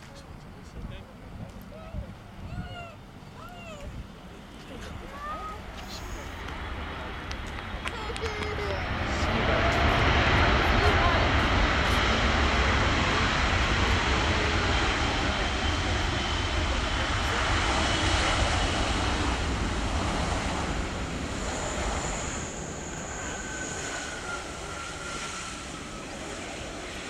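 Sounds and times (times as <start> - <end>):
faint high whine: 0.0 - 27.0
jet engines rushing: 0.0 - 27.0.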